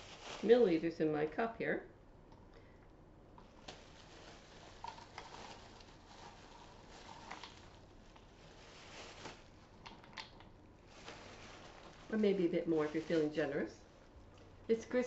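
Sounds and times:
plastic bag crinkling: 0.0s - 1.0s, 3.4s - 15.0s
nuts pattering into cup: 4.6s - 8.3s.

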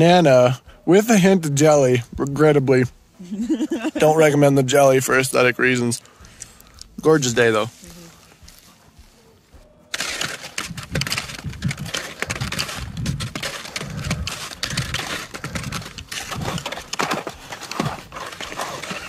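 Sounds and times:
skins swishing and crunching on snow: 7.0s - 19.0s.

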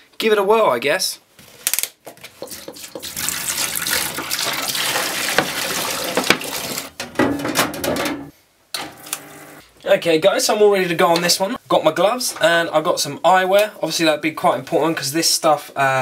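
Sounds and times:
liquid pouring and splashing: 2.3s - 7.0s
tray knocking in tank: 7.0s - 8.3s.

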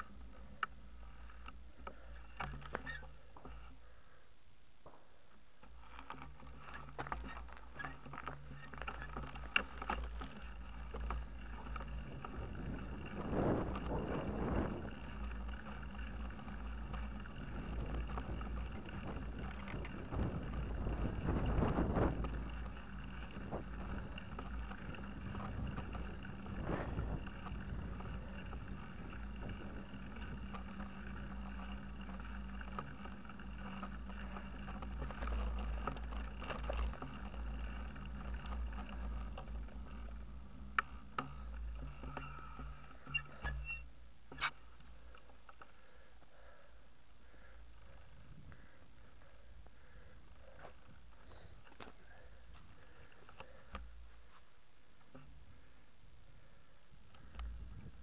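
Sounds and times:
bicycle tyre rumble on asphalt: 0.0s - 58.0s
bicycle rattling clicks: 5.6s - 54.3s
wind on microphone: 17.4s - 30.2s.

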